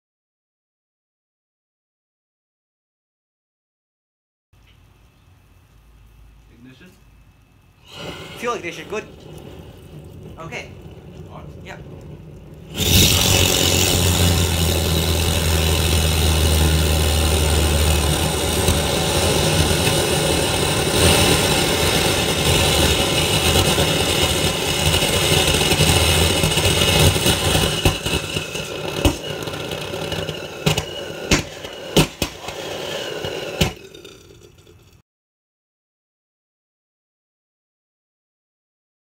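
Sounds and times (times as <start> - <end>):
sharp pops and crackles: 6.0 - 35.0
rocket engine roaring: 7.8 - 35.0.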